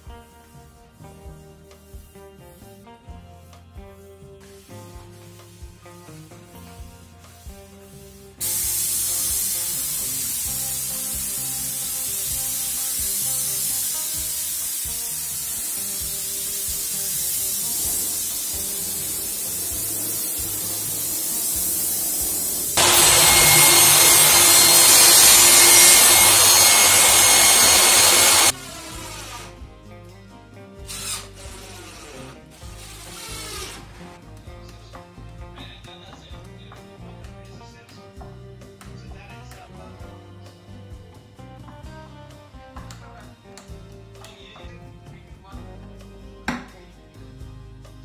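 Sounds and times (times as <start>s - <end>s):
spray gun hissing: 8.4s - 28.6s.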